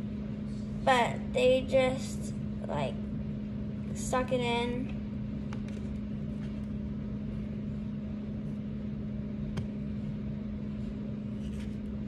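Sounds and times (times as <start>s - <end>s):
steady machine hum: 0.0s - 12.0s.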